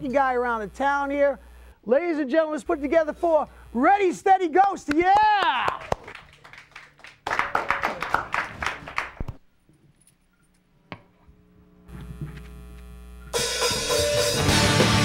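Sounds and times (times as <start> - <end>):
steady low hum: 0.0 - 4.9, 9.5 - 13.5
hand clapping: 4.8 - 9.4
rock band playing loudly: 13.4 - 15.0.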